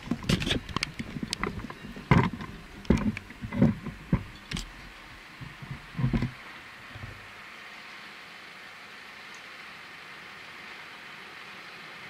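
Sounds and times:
faint hiss: 0.0s - 12.0s
thumps on camera microphone: 5.4s - 6.4s.

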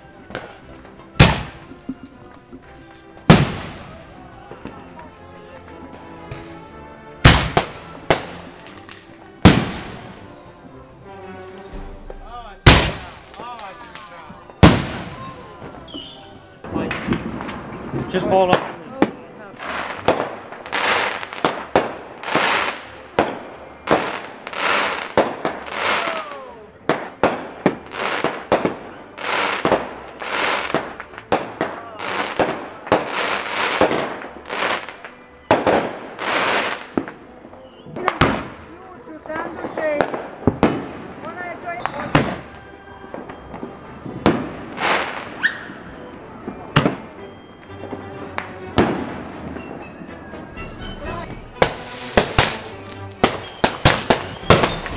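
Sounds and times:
firework crackling bursts: 0.0s - 2.2s, 3.2s - 4.7s, 7.2s - 11.0s, 11.7s - 38.6s, 39.5s - 47.7s, 51.4s - 54.9s
firework launch bangs: 1.2s - 2.1s, 3.2s - 4.0s, 7.2s - 10.2s, 11.7s - 13.9s, 14.6s - 15.4s, 16.8s - 19.0s, 40.0s - 41.2s, 51.4s - 54.9s
fireworks hissing spray: 44.6s - 45.5s, 51.4s - 54.9s.

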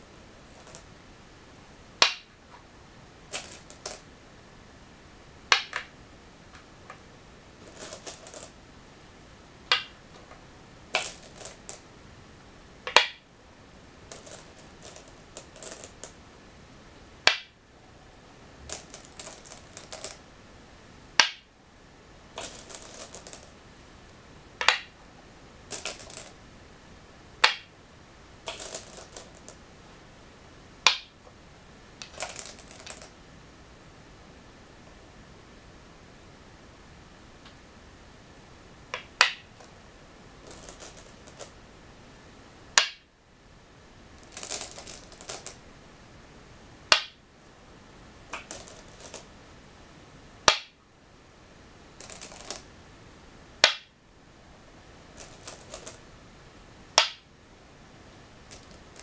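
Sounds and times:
stones clacking on wooden board: 0.5s - 0.9s, 2.0s - 2.3s, 3.3s - 4.0s, 5.5s - 5.9s, 7.6s - 8.6s, 9.7s - 11.8s, 12.9s - 13.2s, 14.1s - 16.2s, 17.2s - 17.6s, 18.7s - 20.2s, 21.2s - 21.5s, 22.4s - 23.5s, 24.6s - 24.9s, 25.7s - 26.4s, 27.4s - 27.7s, 28.5s - 29.6s, 30.8s - 31.1s, 32.0s - 33.1s, 39.0s - 39.7s, 40.4s - 41.5s, 42.8s - 43.0s, 44.2s - 45.6s, 46.9s - 47.2s, 48.3s - 49.2s, 50.5s - 50.8s, 52.0s - 52.6s, 53.6s - 53.9s, 55.2s - 56.0s, 57.0s - 57.2s, 58.5s - 59.0s
stones clattering in bowl: 3.3s - 4.0s, 7.6s - 8.5s, 11.0s - 11.8s, 14.1s - 16.1s, 18.7s - 20.2s, 22.4s - 23.5s, 25.7s - 26.4s, 28.5s - 29.6s, 32.0s - 33.1s, 40.4s - 41.5s, 44.2s - 45.6s, 48.3s - 49.2s, 52.0s - 52.6s, 55.2s - 56.0s.

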